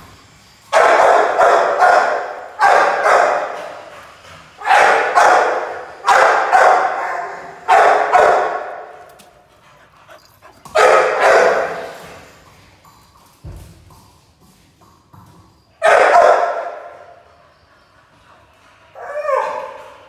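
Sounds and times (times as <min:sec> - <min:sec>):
dog barking with echo: 0:00.8 - 0:03.7, 0:04.6 - 0:09.0, 0:10.8 - 0:11.9, 0:15.8 - 0:17.1.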